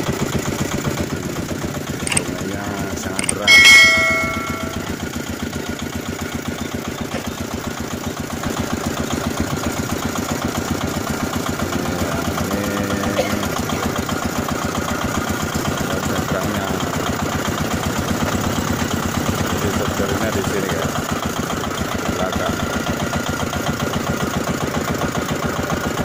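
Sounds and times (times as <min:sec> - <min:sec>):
diesel boat engine running: 0:07.0 - 0:26.0.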